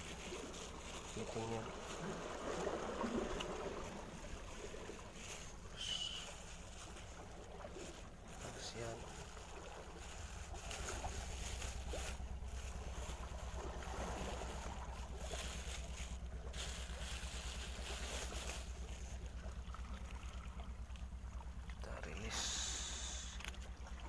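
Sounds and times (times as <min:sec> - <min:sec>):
fluttering low rumble: 0:00.0 - 0:24.0
plastic bag crinkling: 0:03.7 - 0:19.1.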